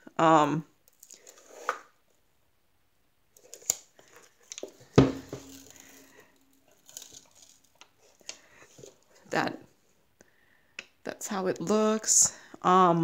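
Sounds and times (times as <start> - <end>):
paper and plastic crinkling: 3.4 - 9.3
box knocking: 5.0 - 5.7.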